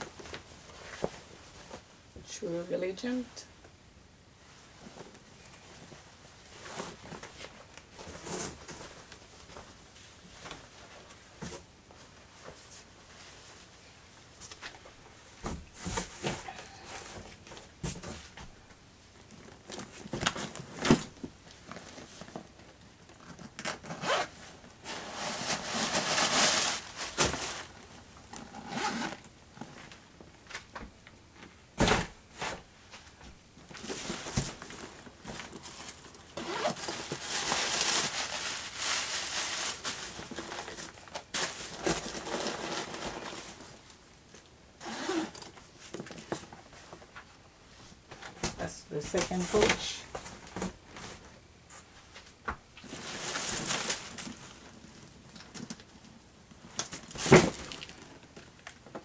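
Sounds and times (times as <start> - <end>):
crinkling of plastic and paper: 19.2 - 28.4, 32.9 - 44.6, 52.1 - 59.0.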